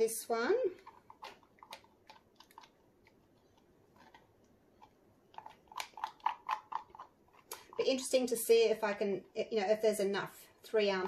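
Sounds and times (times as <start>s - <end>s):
clicks and taps of small objects: 0.8s - 7.8s.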